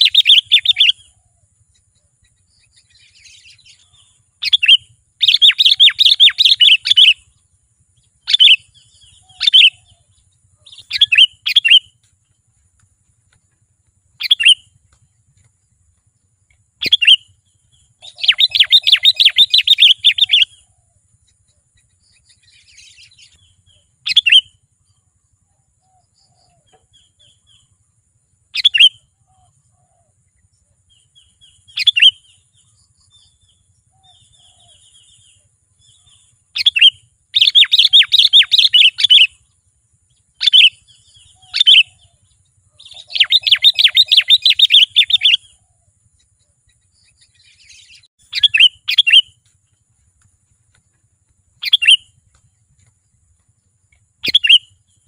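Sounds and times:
bird chirping and chattering: 0:00.0 - 0:01.1, 0:02.2 - 0:07.4, 0:08.2 - 0:11.9, 0:14.2 - 0:14.7, 0:16.8 - 0:20.6, 0:22.0 - 0:24.5, 0:31.2 - 0:32.4, 0:34.0 - 0:39.5, 0:40.4 - 0:45.6, 0:46.6 - 0:49.4, 0:51.6 - 0:52.2, 0:54.2 - 0:55.0.

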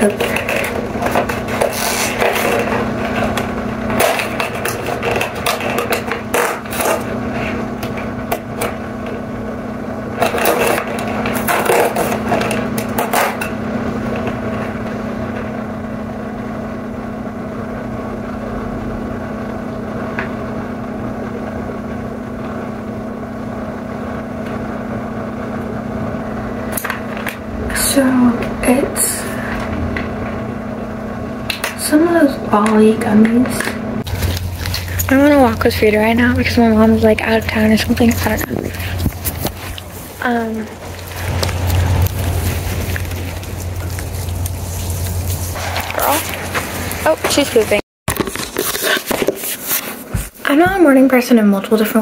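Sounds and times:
background hum: 0:00.0 - 0:52.0.

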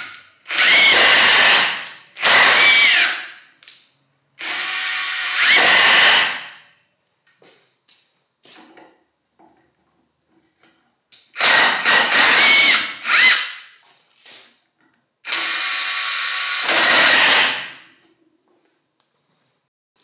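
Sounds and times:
cordless impact wrench: 0:00.0 - 0:03.4, 0:04.4 - 0:06.6, 0:11.3 - 0:13.7, 0:15.2 - 0:17.9.

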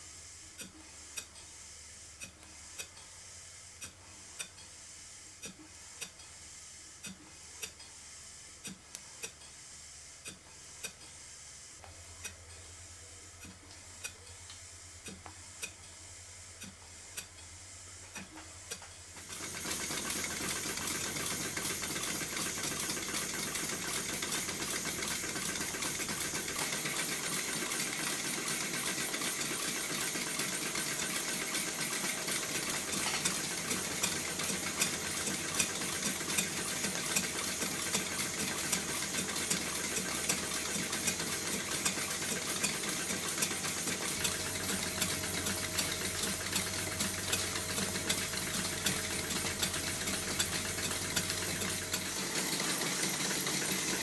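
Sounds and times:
model steam engines clattering: 0:19.3 - 0:54.0.

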